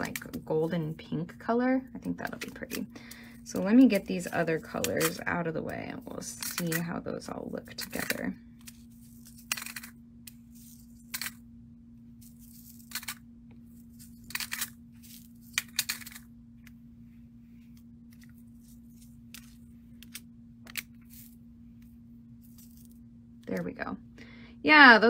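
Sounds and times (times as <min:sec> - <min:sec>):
steady low hum: 0:00.0 - 0:25.0
bead trays clicking and rattling: 0:02.2 - 0:05.3, 0:07.7 - 0:11.4, 0:12.2 - 0:13.2, 0:13.9 - 0:16.3.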